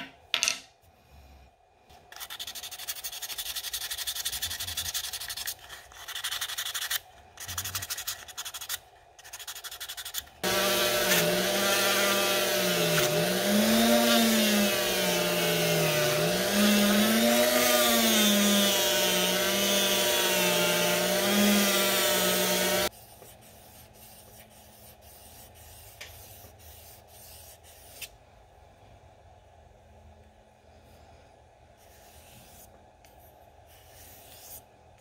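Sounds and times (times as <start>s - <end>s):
rotary tool motor hum: 10.0s - 22.9s.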